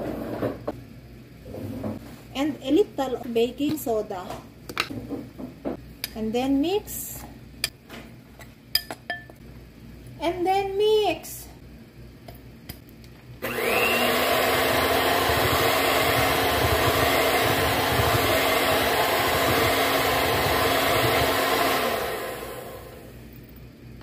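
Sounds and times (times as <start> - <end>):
electric hand mixer whining: 13.4 - 23.3.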